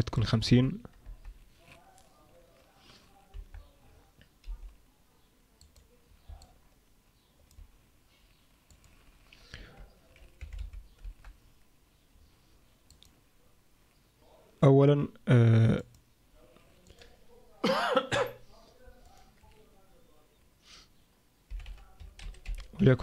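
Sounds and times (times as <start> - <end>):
computer mouse clicks: 5.6 - 6.6, 7.4 - 7.7, 8.6 - 11.4, 12.9 - 13.2.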